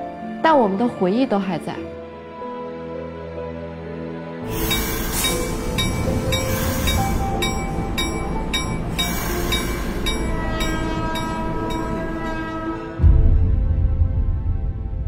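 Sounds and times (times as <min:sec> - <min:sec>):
train rumbling: 0:04.5 - 0:14.2.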